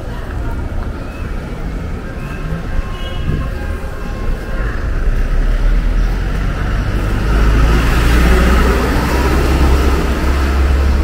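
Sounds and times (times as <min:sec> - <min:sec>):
vehicle passing by: 0:05.1 - 0:11.0.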